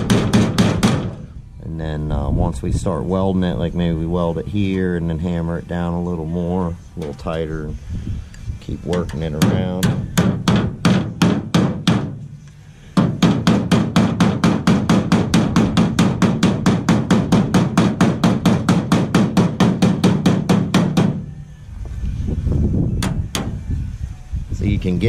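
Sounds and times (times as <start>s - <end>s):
hammer striking sheet steel: 0.0s - 1.3s, 8.9s - 21.4s.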